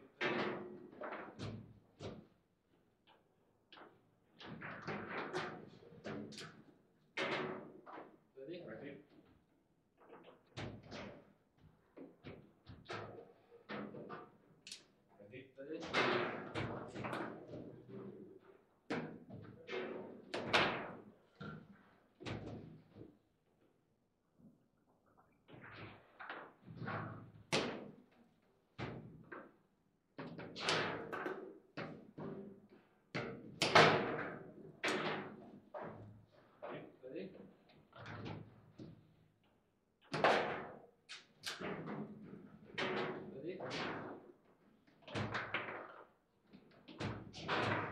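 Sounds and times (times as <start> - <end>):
foosball knocks and clacks: 40.1 - 44.3, 45.1 - 47.9.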